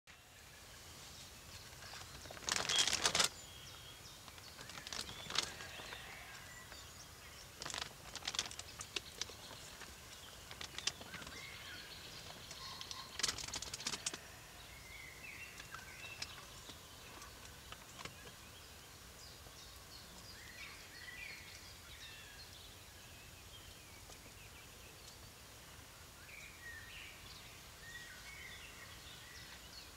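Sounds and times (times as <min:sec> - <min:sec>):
animals rustling dry leaves: 0:00.2 - 0:18.5
small birds chirping: 0:00.2 - 0:29.9.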